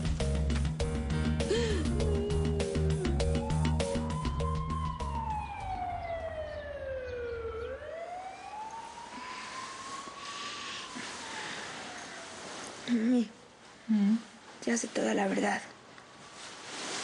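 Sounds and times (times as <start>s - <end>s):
background music with a beat: 0.0s - 5.4s
wailing siren-like tone: 2.0s - 13.0s.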